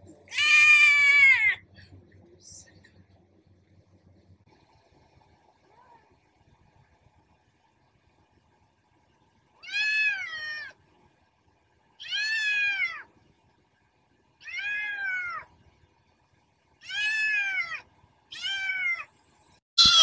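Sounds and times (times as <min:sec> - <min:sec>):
kitten meowing: 0:19.8 - 0:20.0.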